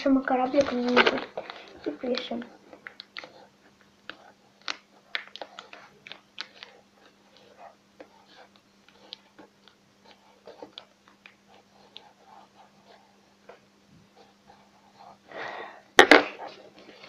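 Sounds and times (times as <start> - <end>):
pen scratching on paper: 3.2 - 3.5, 4.1 - 10.9, 11.5 - 15.3.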